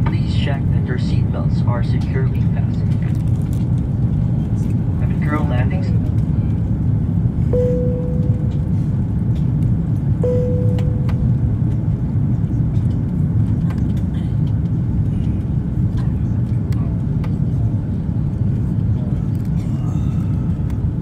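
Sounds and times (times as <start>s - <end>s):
airliner cabin engine rumble: 0.0s - 21.0s
single-tone cabin chime: 7.5s - 8.7s, 10.2s - 11.4s.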